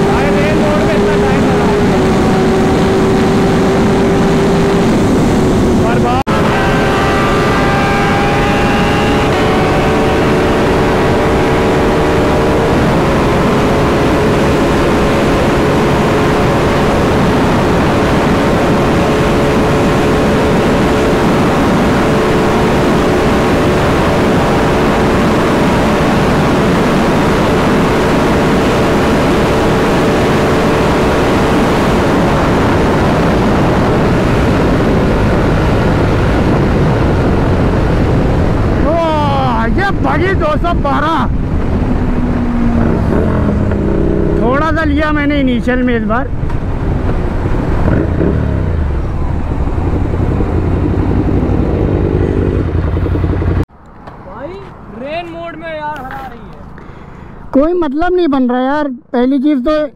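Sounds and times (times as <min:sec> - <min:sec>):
motorcycle engine high note: 0:00.0 - 0:17.8, 0:47.9 - 0:53.6
wind buffeting microphone: 0:00.0 - 0:57.6.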